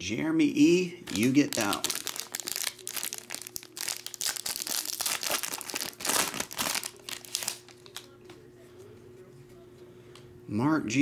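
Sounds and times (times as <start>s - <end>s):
foil wrapper crinkling and tearing: 1.1s - 8.1s.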